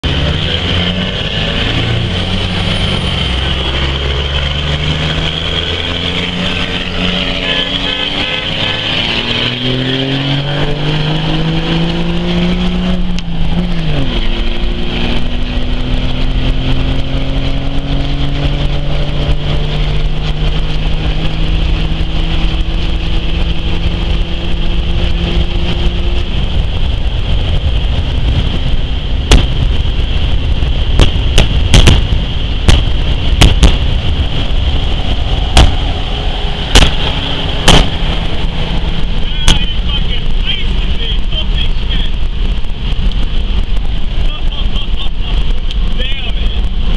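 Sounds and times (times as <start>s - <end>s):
diesel engine accelerating: 0.0s - 46.9s
steady high whine: 0.0s - 46.9s
sharp crack: 29.2s - 30.0s, 30.8s - 40.5s.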